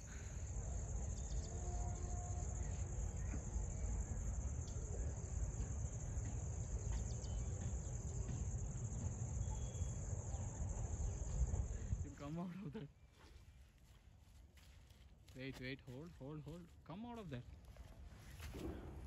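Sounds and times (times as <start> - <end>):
insects chirring: 0.0 - 12.9.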